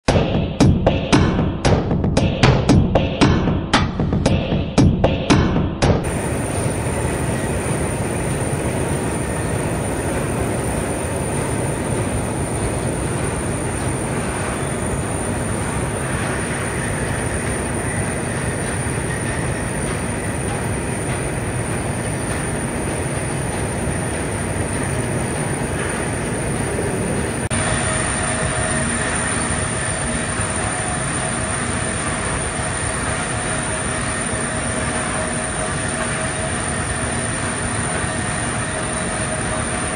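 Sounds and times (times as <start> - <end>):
music drum hits: 0.1 - 6.1
belt conveyor rumbling: 6.0 - 39.9.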